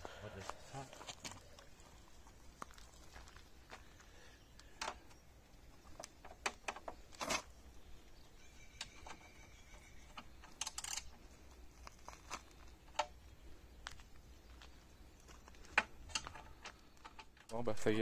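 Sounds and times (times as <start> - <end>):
hand tools clicking and tapping: 10.1 - 11.2, 15.6 - 17.4.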